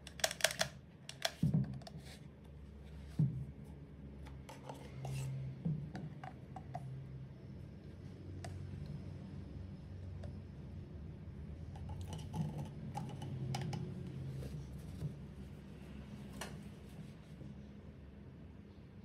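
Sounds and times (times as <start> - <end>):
plastic and metal parts clicking: 0.0 - 1.4.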